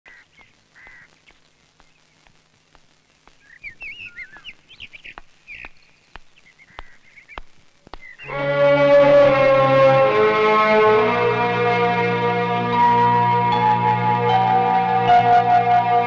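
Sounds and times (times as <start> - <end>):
soft footsteps: 0.1 - 8.2
birds chirping: 0.1 - 8.5.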